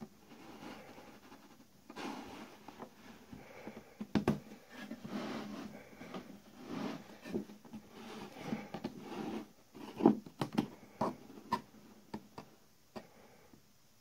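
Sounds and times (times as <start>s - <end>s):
soft rubbing and scraping: 0.2s - 3.8s, 4.5s - 10.2s.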